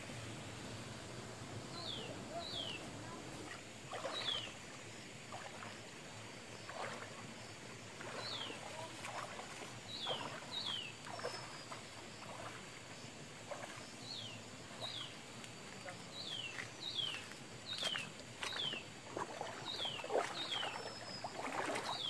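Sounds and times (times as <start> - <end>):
footsteps splashing through stream: 1.1 - 22.0.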